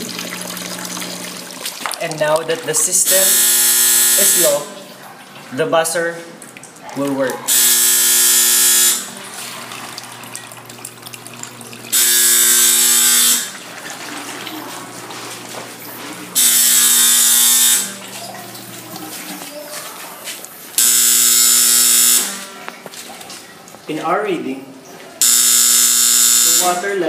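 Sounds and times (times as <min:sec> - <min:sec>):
harsh alarm buzzer: 0:03.1 - 0:04.7, 0:07.5 - 0:09.2, 0:11.9 - 0:13.6, 0:16.4 - 0:18.1, 0:20.8 - 0:22.6, 0:25.2 - 0:27.0.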